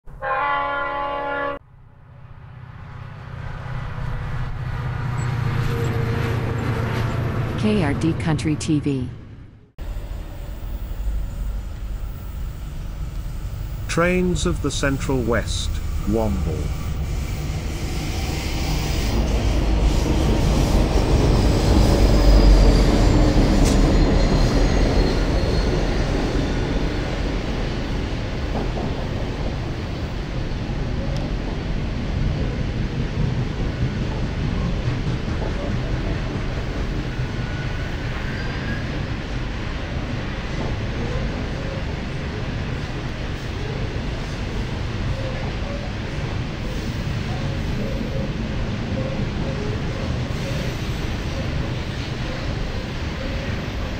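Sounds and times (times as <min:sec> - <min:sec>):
train horn chord: 0:00.1 - 0:01.6
freight train rumbling: 0:02.0 - 0:53.9
low rumble: 0:09.1 - 0:19.9
high wheel squeal: 0:37.4 - 0:39.1.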